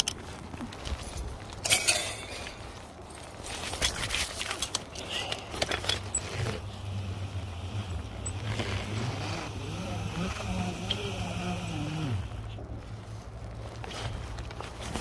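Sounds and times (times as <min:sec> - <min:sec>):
metal climbing gear clinking: 0:00.0 - 0:11.0.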